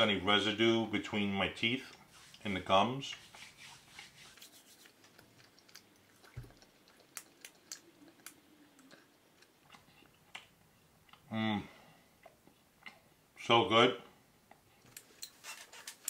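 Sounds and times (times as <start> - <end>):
man chewing with wet clicks: 4.8 - 11.3, 12.2 - 13.1.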